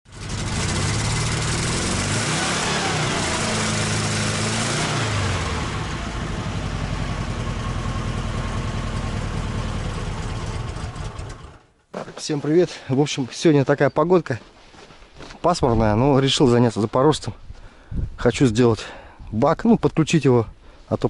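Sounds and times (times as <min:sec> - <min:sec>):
car engine revving and idling: 0:00.1 - 0:11.6.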